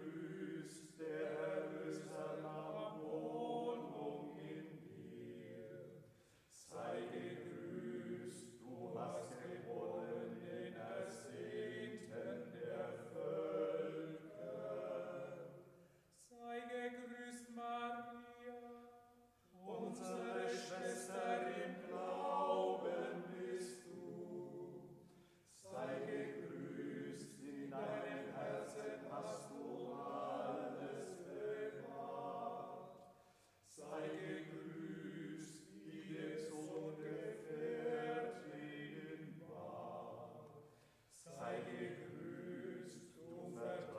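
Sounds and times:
person singing a chant-like hymn: 0:00.0 - 0:43.9
singer breathing: 0:06.1 - 0:06.5, 0:33.1 - 0:33.6, 0:40.6 - 0:41.1.

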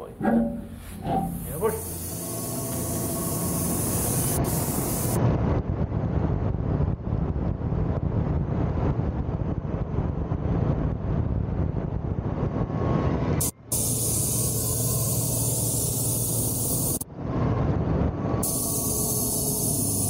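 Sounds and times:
saw blade hissing through wood: 0:01.6 - 0:05.2, 0:18.4 - 0:20.0
electric motor running: 0:01.7 - 0:05.2, 0:13.7 - 0:17.0, 0:18.4 - 0:20.0.

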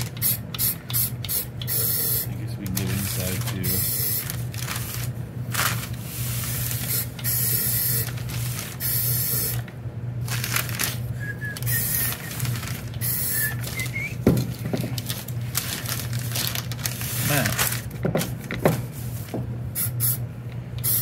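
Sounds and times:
spray can hissing: 0:00.2 - 0:02.2, 0:11.7 - 0:12.2, 0:19.8 - 0:20.2.

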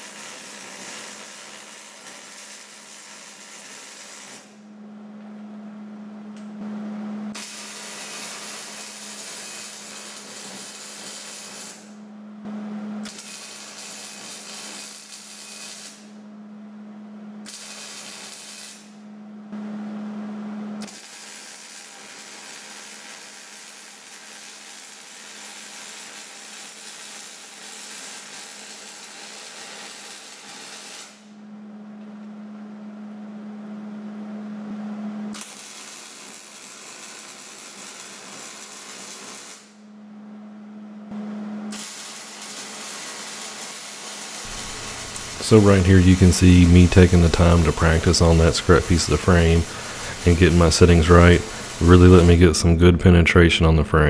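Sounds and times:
welding arc hissing and crackling: 0:00.0 - 0:04.6, 0:07.3 - 0:12.0, 0:13.1 - 0:16.1, 0:17.5 - 0:18.9, 0:20.8 - 0:31.3, 0:35.4 - 0:39.8, 0:41.7 - 0:52.6
steady low hum: 0:04.6 - 0:07.4, 0:12.0 - 0:13.1, 0:16.1 - 0:17.5, 0:18.9 - 0:20.8, 0:31.2 - 0:35.4, 0:39.8 - 0:41.8, 0:44.5 - 0:54.0.

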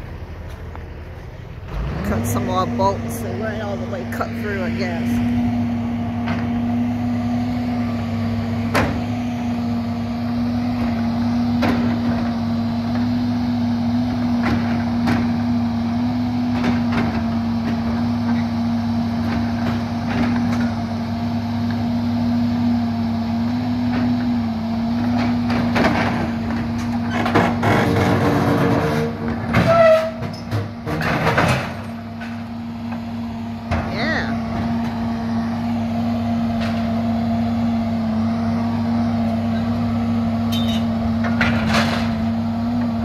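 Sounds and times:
diesel engine running: 0:00.0 - 0:43.0
metal clanks and knocks: 0:25.0 - 0:32.5, 0:40.5 - 0:42.3.

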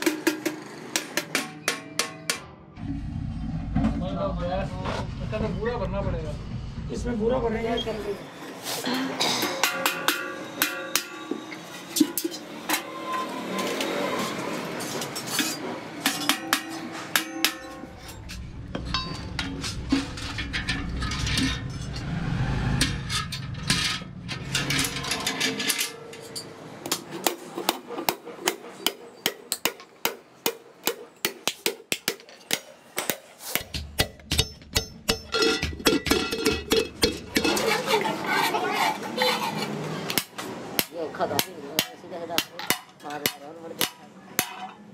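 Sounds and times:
low rumble: 0:02.8 - 0:07.7, 0:18.1 - 0:25.2.

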